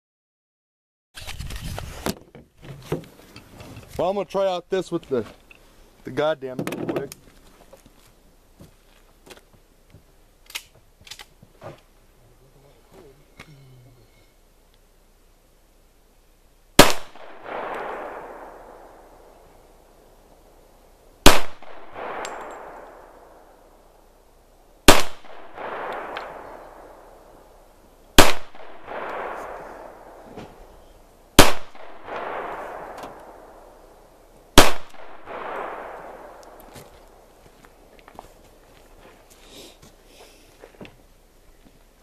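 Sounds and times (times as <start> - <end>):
pistol shots: 16.8 - 19.3, 21.2 - 23.5, 24.8 - 27.4, 28.2 - 30.3, 31.4 - 33.7, 34.6 - 36.7
rolling gunshot echo: 16.8 - 19.3, 21.2 - 23.5, 24.9 - 27.1, 28.2 - 30.7, 31.4 - 33.7, 34.6 - 36.6.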